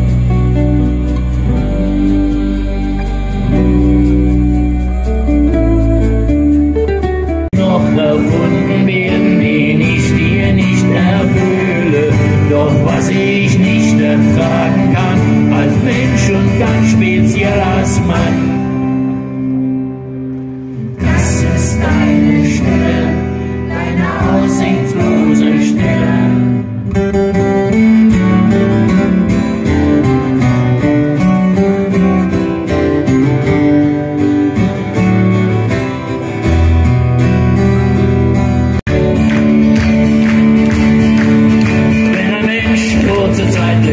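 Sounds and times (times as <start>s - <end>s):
acoustic guitars strummed and picked: 0.0s - 43.9s
person singing: 7.5s - 18.9s, 21.0s - 26.8s, 41.7s - 43.9s.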